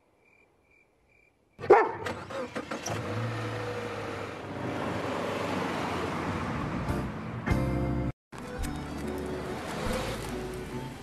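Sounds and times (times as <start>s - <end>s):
faint cricket chirps: 0.0s - 1.6s
dog barking: 1.6s - 2.1s.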